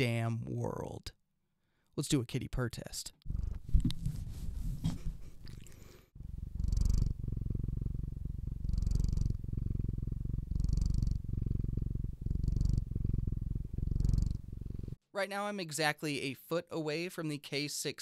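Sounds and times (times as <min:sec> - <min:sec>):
cat purring: 0:03.2 - 0:15.0.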